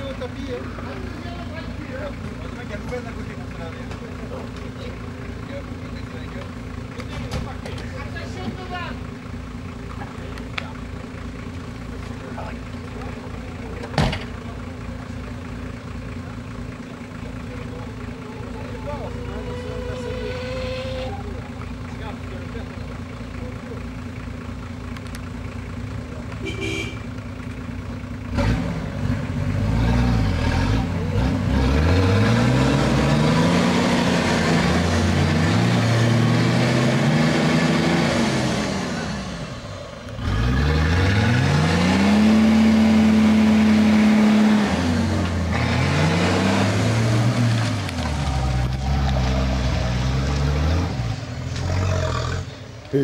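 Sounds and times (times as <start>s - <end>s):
engine revving hard: 28.3s - 39.6s, 40.2s - 52.6s.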